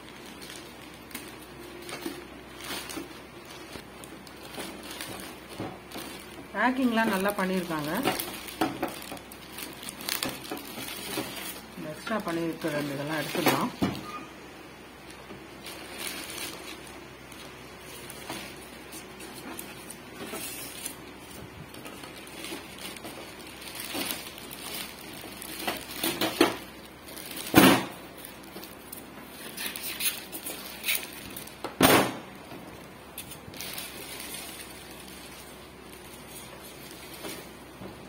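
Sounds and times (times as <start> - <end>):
plastic wrapping crinkling: 0.0 - 38.0.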